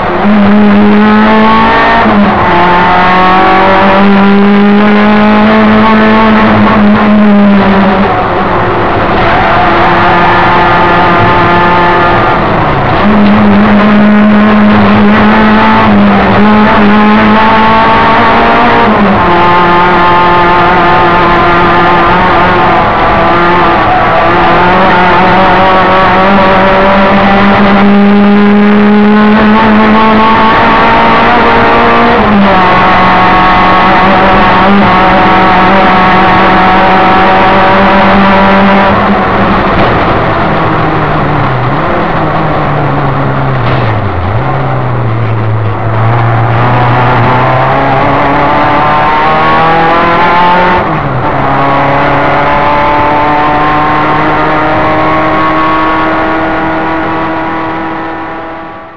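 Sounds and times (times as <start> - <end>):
race car engine at full throttle: 0.0 - 58.9.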